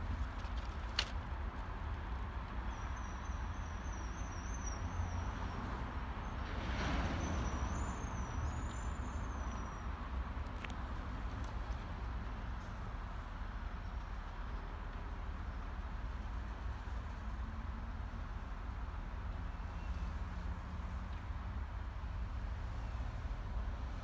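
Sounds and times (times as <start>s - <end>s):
freight train rumbling: 0.0s - 2.3s.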